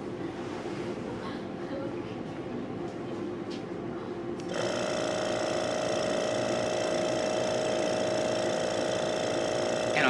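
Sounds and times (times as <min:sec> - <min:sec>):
vacuum pump humming: 0:04.4 - 0:10.0.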